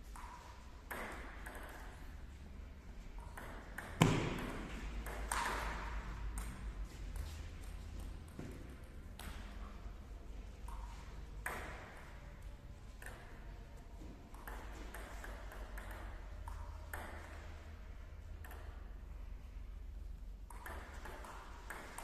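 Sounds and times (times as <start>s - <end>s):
low steady hum: 0.0s - 22.0s
table tennis ball hits: 0.1s - 2.0s, 3.2s - 6.6s, 10.7s - 12.2s, 14.3s - 17.5s, 20.5s - 22.0s.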